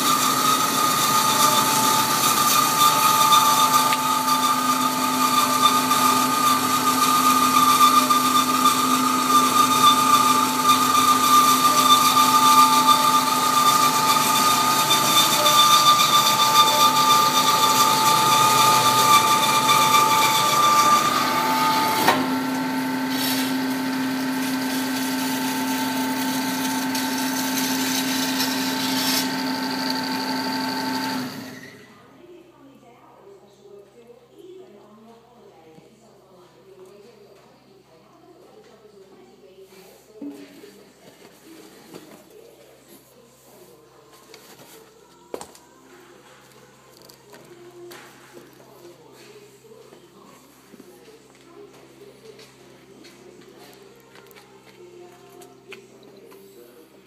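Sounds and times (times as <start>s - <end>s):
bandsaw whining through metal: 0.0s - 31.9s.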